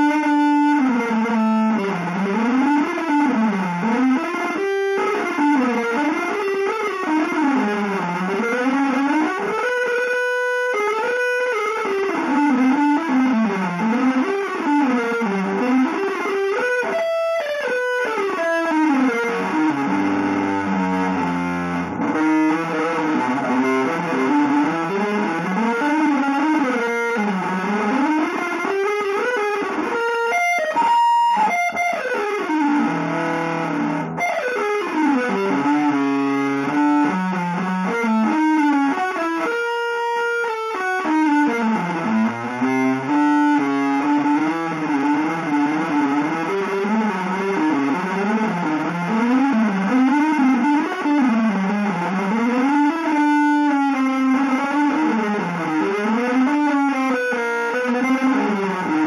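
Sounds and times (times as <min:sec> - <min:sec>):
electric guitar improvising runs: 0:00.0 - 0:59.0.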